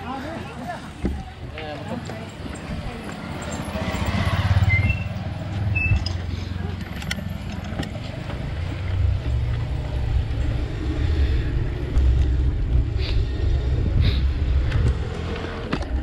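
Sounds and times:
wind buffeting microphone: 0:09.0 - 0:16.0.

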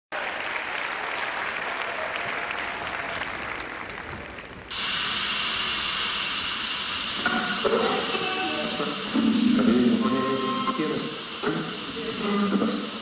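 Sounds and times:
audience applauding: 0:00.1 - 0:04.7
loud steady hiss: 0:04.5 - 0:13.0.

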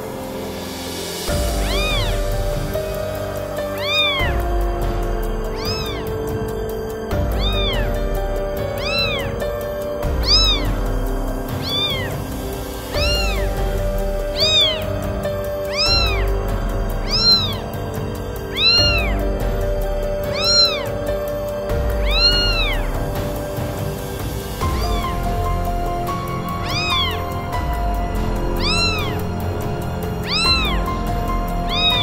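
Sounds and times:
background music with held notes: 0:00.0 - 0:32.0
cat meowing: 0:01.5 - 0:04.5, 0:05.4 - 0:06.3, 0:07.2 - 0:16.4, 0:17.0 - 0:17.8, 0:18.5 - 0:21.2, 0:21.8 - 0:23.5, 0:24.6 - 0:32.0.

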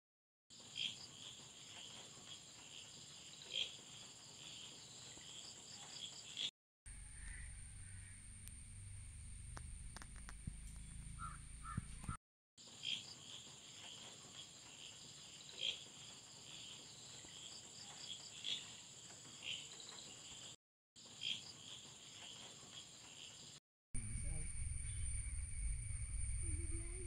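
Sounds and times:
crickets chirring: 0:00.6 - 0:10.4, 0:12.6 - 0:27.0
short bird calls: 0:07.1 - 0:08.1, 0:11.2 - 0:12.1.

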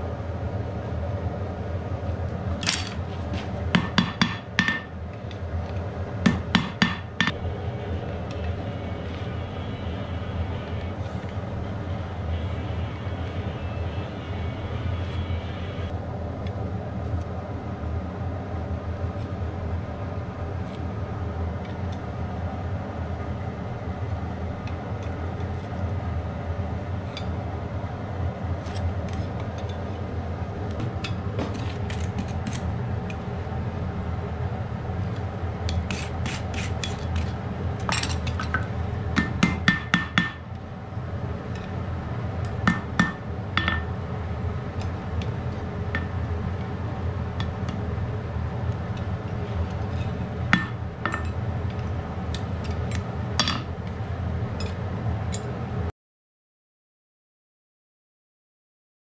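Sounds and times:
steady hum: 0:00.0 - 0:55.9
hammer striking iron on anvil: 0:02.6 - 0:03.0, 0:03.7 - 0:05.0, 0:06.2 - 0:07.4, 0:37.8 - 0:40.5, 0:42.6 - 0:44.0, 0:46.0 - 0:46.2, 0:50.5 - 0:51.4, 0:53.4 - 0:53.7.

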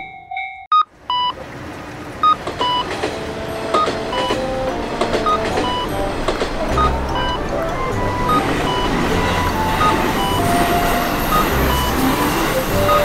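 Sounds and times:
electric train running past: 0:02.2 - 0:13.0
short electronic beeps: 0:06.8 - 0:10.5, 0:11.3 - 0:12.0.

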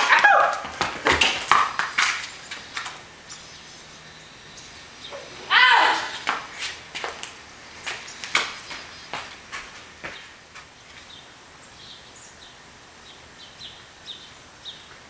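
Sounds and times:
running footsteps on pavement: 0:00.0 - 0:03.4, 0:05.6 - 0:11.4
small bird chirping: 0:01.7 - 0:05.5, 0:10.1 - 0:15.0.

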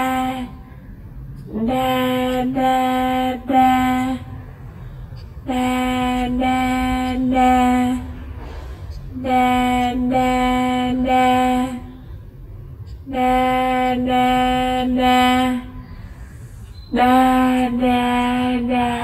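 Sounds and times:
high voice singing: 0:00.0 - 0:00.7, 0:01.5 - 0:04.6, 0:05.4 - 0:08.3, 0:09.0 - 0:12.0, 0:13.0 - 0:16.1, 0:16.8 - 0:19.0
low steady hum: 0:00.0 - 0:19.0.

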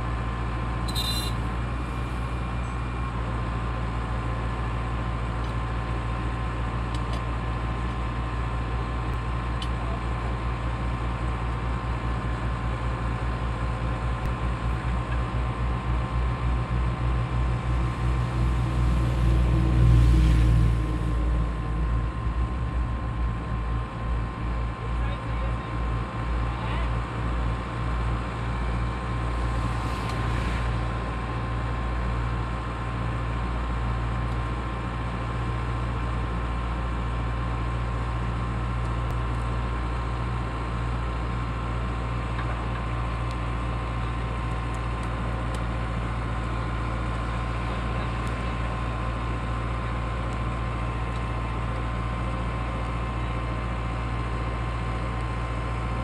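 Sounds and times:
diesel engine running: 0:00.0 - 0:56.0
hydraulic whine: 0:00.8 - 0:03.1.

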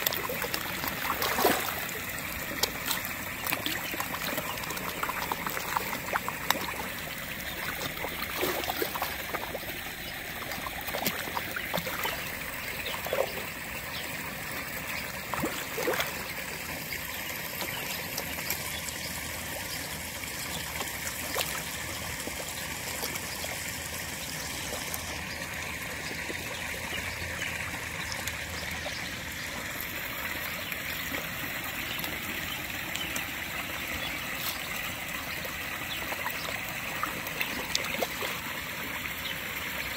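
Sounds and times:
fish splashing at surface: 0:00.0 - 0:06.9
pond water trickling: 0:00.0 - 0:39.9.

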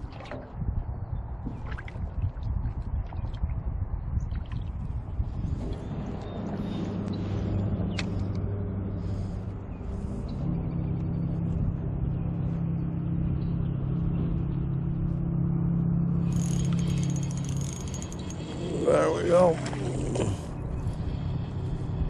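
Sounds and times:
motor engine humming: 0:05.5 - 0:22.0
fishing reel whirring: 0:16.2 - 0:19.8.

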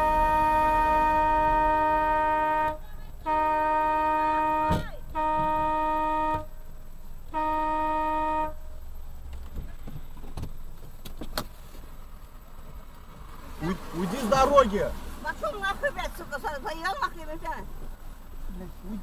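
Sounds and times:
car horn blasts: 0:00.0 - 0:08.8
car driving road noise: 0:00.0 - 0:19.0.

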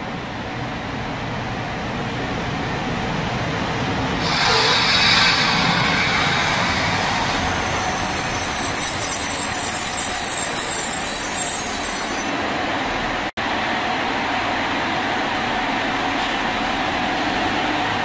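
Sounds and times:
train wheels rumbling: 0:00.4 - 0:13.3
high-pitched brake squeal: 0:04.2 - 0:12.5.

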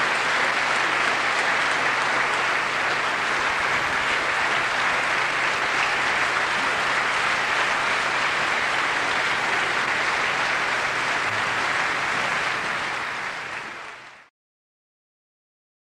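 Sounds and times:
audience applauding: 0:00.0 - 0:14.3.

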